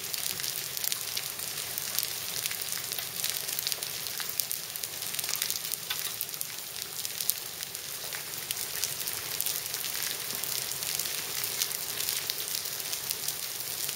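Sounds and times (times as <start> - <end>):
rain hissing: 0.0 - 13.9
hailstones clicking on tiles: 2.9 - 6.9.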